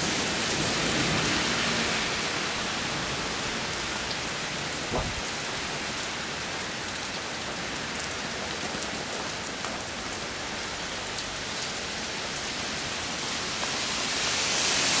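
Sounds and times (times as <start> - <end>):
heavy rain hissing: 0.0 - 15.0.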